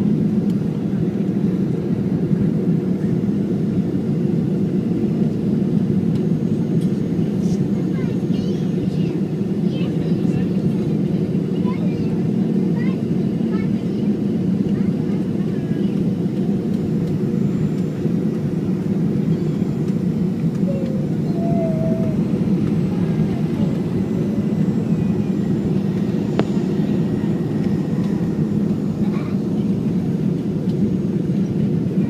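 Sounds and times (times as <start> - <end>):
airplane cabin engine noise: 0.0 - 32.0
airflow: 20.2 - 31.9.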